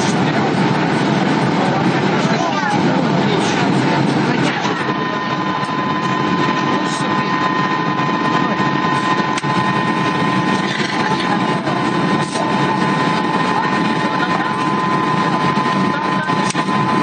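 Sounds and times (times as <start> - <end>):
airliner cabin engine rush: 0.0 - 17.0
thin steady whine: 0.0 - 17.0.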